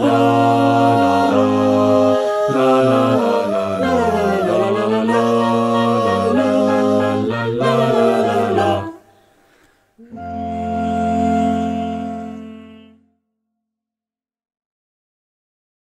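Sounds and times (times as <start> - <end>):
mixed choir singing harmony: 0.0 - 9.2, 10.0 - 13.0.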